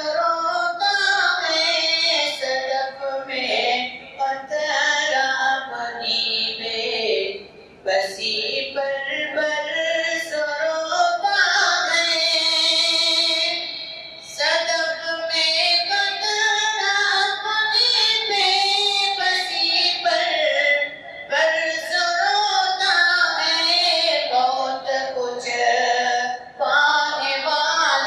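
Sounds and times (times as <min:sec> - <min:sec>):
man singing unaccompanied: 0:00.0 - 0:28.0.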